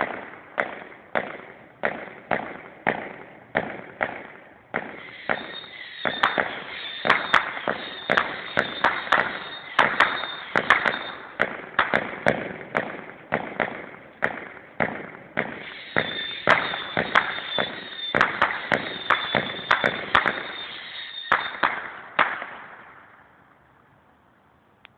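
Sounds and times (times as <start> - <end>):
firework bangs and crackling: 0.0 - 23.3
firework whistling: 4.3 - 13.0, 14.4 - 22.7.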